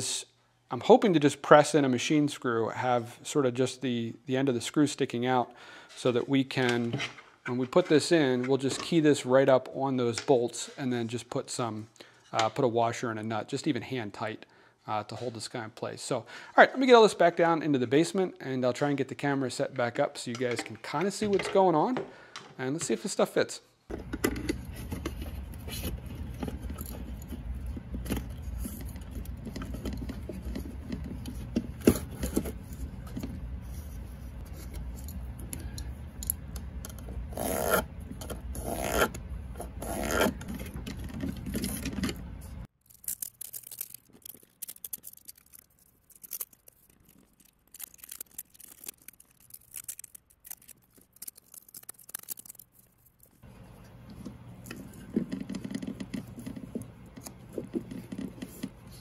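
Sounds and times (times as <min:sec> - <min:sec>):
duct fan hum: 0:23.9 - 0:42.6, 0:53.4 - 0:59.0
scraping and rustling handling noise: 0:23.9 - 0:59.0.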